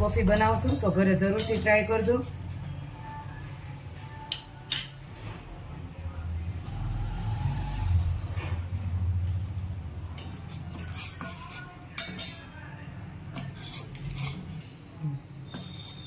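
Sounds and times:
spoon scraping pot: 0.2s - 2.7s, 10.1s - 12.4s, 13.3s - 14.7s, 15.4s - 16.0s.

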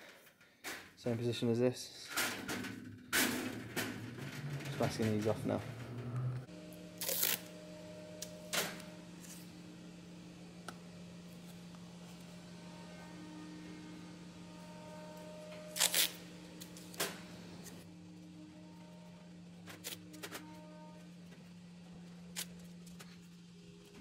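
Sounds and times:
low electrical hum: 0.0s - 24.0s
masking tape torn and pressed: 7.0s - 7.5s, 15.7s - 16.2s.

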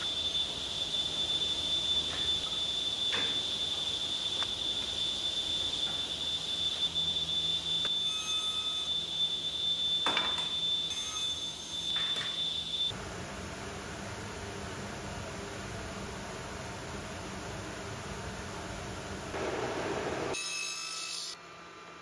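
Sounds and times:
table saw whining: 0.0s - 13.0s.

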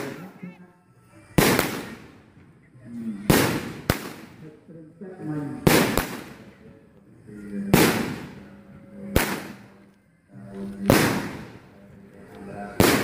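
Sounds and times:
firework bangs: 1.4s - 2.2s, 3.3s - 4.4s, 5.6s - 6.4s, 7.7s - 8.4s, 9.2s - 9.7s, 10.9s - 11.6s, 12.8s - 13.0s.

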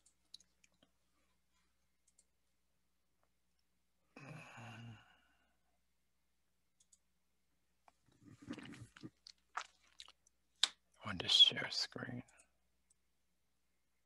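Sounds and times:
faint clicks: 2.0s - 2.3s, 6.8s - 7.0s
person sighing: 4.2s - 5.4s.

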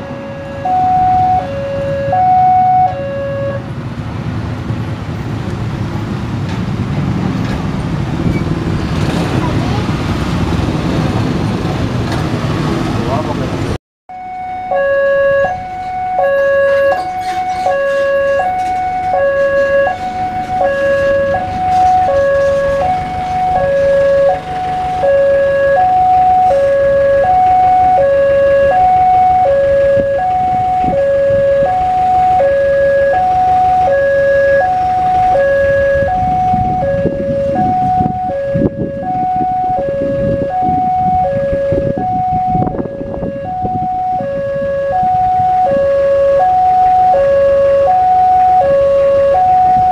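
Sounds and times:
two-tone crossing alarm: 0.0s - 3.7s, 14.1s - 49.9s
vehicle engines running: 0.0s - 49.9s.

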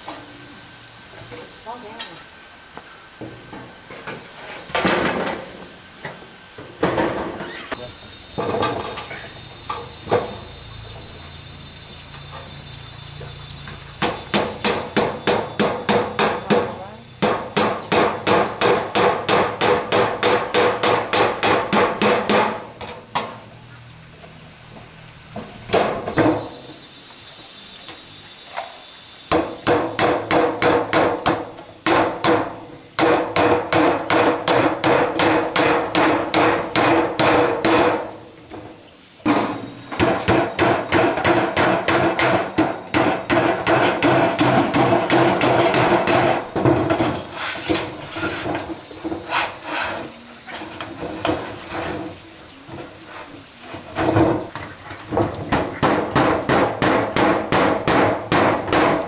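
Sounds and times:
hammer pounding on wood: 14.0s - 23.3s, 29.3s - 38.1s, 39.3s - 47.2s, 55.2s - 59.0s.

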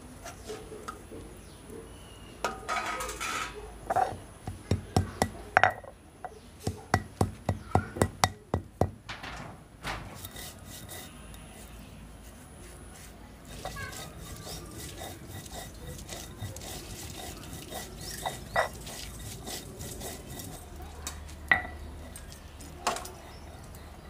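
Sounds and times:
stone scraping on stone slab: 2.8s - 5.9s, 10.1s - 11.7s, 13.0s - 20.9s.

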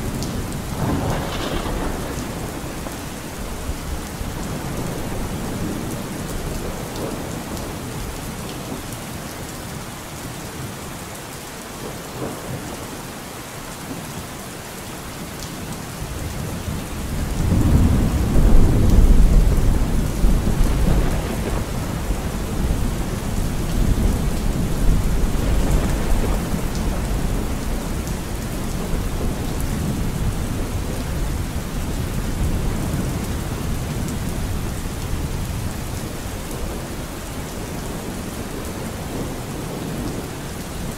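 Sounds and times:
deep thunder rumble: 0.0s - 7.6s, 16.2s - 36.8s
steady rain: 0.0s - 40.9s.

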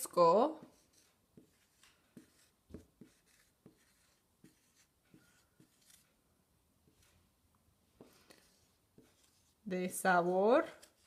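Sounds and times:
marker writing on whiteboard: 0.0s - 6.2s, 8.0s - 9.6s, 10.6s - 11.0s.

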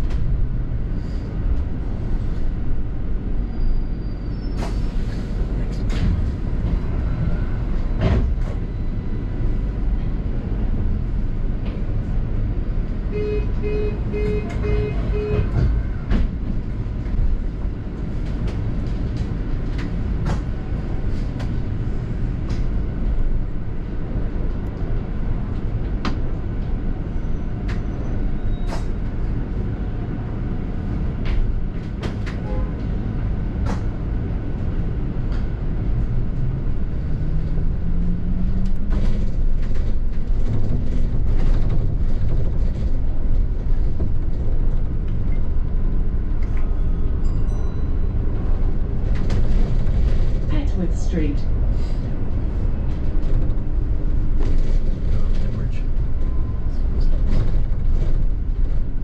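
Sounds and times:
bus engine and road rumble: 0.0s - 59.0s
short beeps: 13.2s - 15.5s
rattles and clicks: 38.5s - 46.8s, 48.3s - 50.6s.

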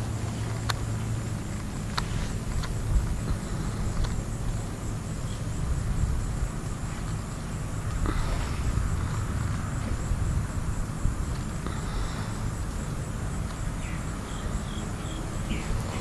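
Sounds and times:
insects chirping: 0.0s - 16.0s
steady low rumble: 0.0s - 16.0s.

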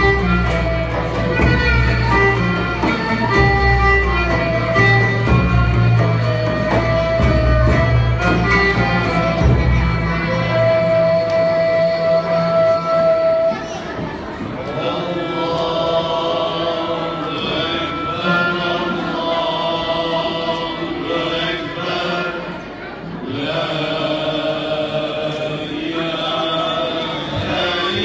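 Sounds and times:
frame drum: 0.0s - 11.1s
ney flute: 0.0s - 14.4s
violin: 0.0s - 22.8s
oud: 0.0s - 28.0s
male choir singing a hymn: 14.6s - 28.0s.

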